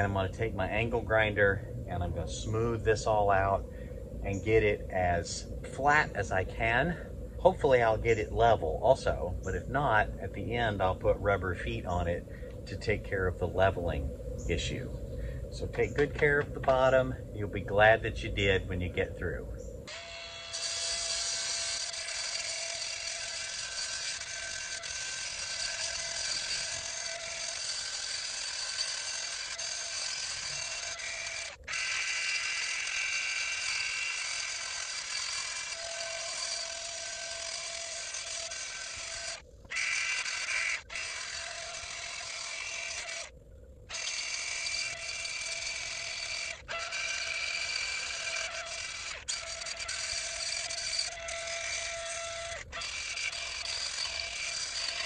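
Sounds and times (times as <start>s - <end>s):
angle grinder whining: 19.9s - 43.3s, 43.9s - 55.0s.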